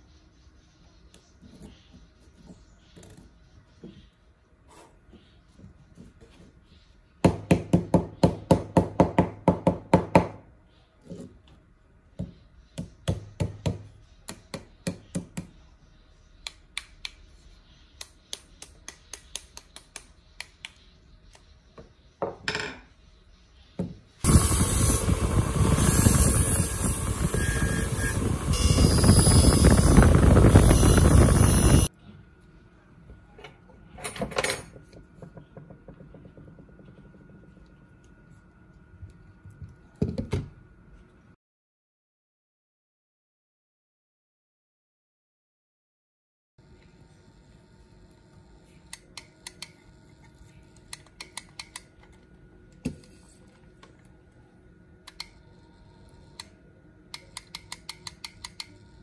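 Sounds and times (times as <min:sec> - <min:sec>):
loud steady rushing tool noise: 0:24.3 - 0:31.9.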